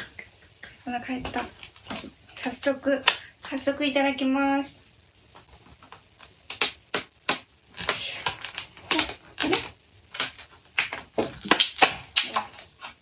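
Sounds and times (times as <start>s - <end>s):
plastic lid snapping and crackling: 5.4s - 13.0s.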